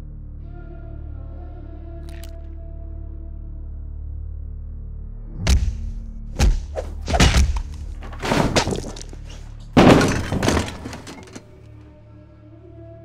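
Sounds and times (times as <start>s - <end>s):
faint low music drone: 0.0s - 6.6s, 11.5s - 13.0s
heavy thuds and crashes: 6.4s - 11.6s
clattering: 6.8s - 11.7s.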